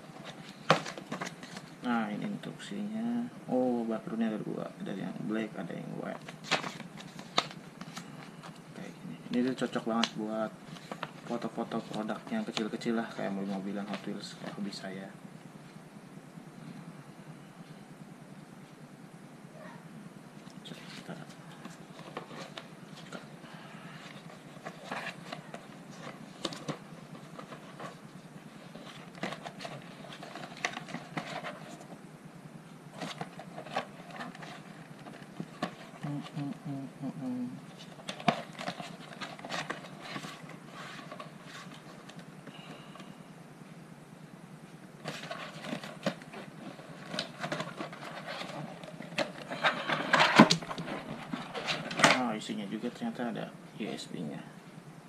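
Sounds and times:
steady low hum: 0.0s - 55.0s
plastic sheets rustling: 6.0s - 14.8s, 37.7s - 42.7s
panel rustling and scraping: 45.0s - 52.2s.

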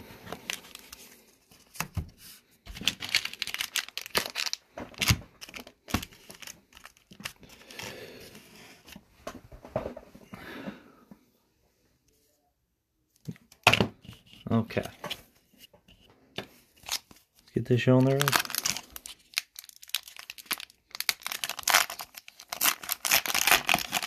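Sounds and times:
wrapped card packs crinkling: 0.3s - 1.9s, 2.7s - 7.9s, 16.8s - 24.0s.

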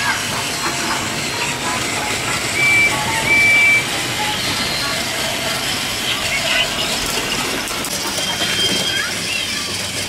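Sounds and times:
toy trains whirring and rattling: 0.0s - 10.0s
short high beeps: 2.6s - 4.4s.

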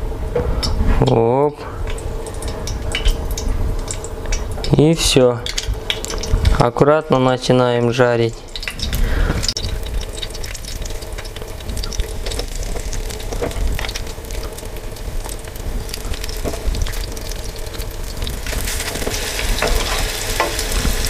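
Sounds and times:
batter sizzling in hot oil: 1.8s - 6.6s, 7.7s - 21.0s
metal spoons scraping a pan: 18.9s - 20.8s.

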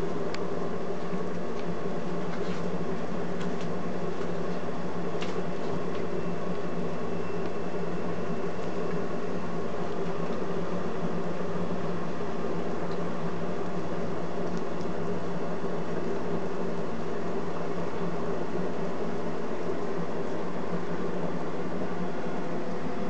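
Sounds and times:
mechanical whirring hum: 0.0s - 23.0s.

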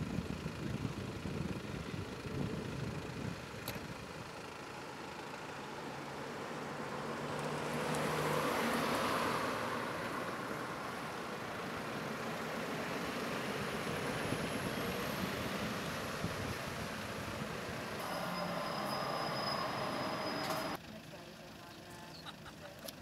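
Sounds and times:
steady traffic hum: 0.0s - 23.0s
vehicle passing: 6.0s - 20.8s.

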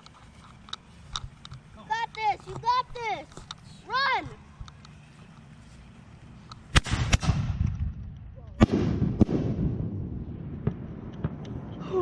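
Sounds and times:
fireworks bangs: 6.7s - 11.8s.

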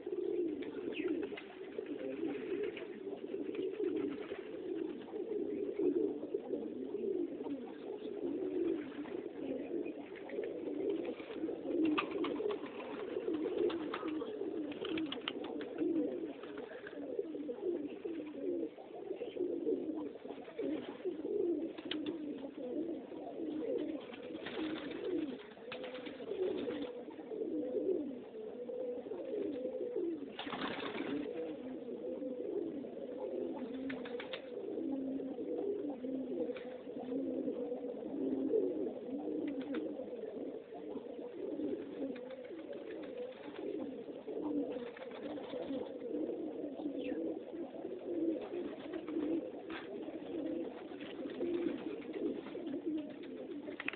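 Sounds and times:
pigeons cooing: 0.0s - 53.9s.

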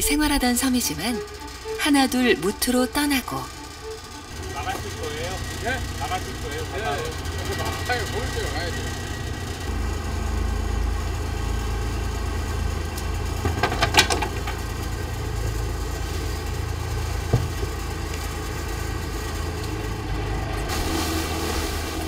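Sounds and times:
boat engine humming: 0.0s - 22.0s
clattering knocks: 13.1s - 15.0s, 17.1s - 18.3s.

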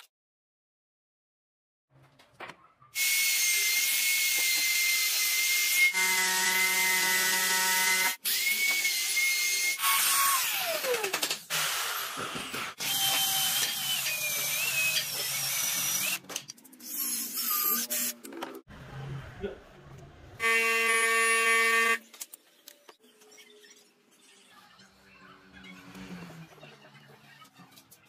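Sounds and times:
router whining cutting wood: 3.0s - 11.1s.

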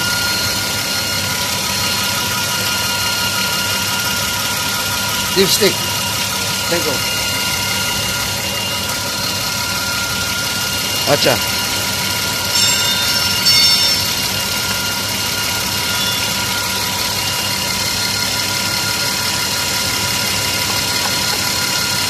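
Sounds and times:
car engine idling: 0.0s - 22.0s
brief high-pitched sounds: 12.5s - 14.5s.

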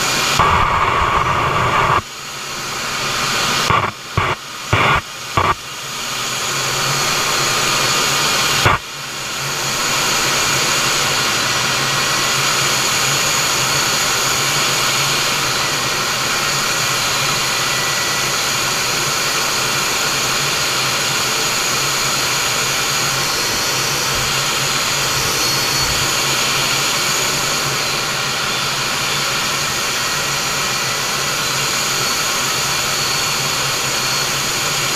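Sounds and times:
jet engine hum: 0.0s - 34.9s
sharp click: 3.7s - 5.6s, 8.6s - 8.8s.

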